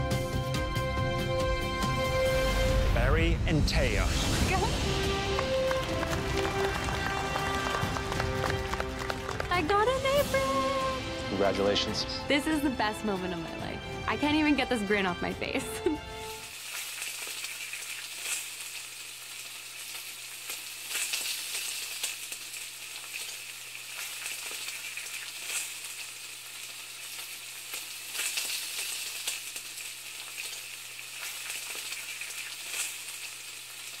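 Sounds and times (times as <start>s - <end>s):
food sizzling in a pan: 14.3s - 34.0s.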